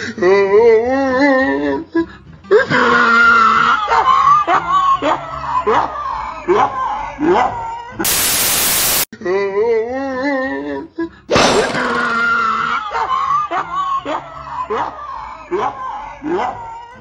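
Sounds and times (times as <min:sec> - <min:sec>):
music: 0:00.0 - 0:08.0, 0:09.2 - 0:11.4, 0:12.2 - 0:17.0
tv static hiss: 0:08.1 - 0:09.1.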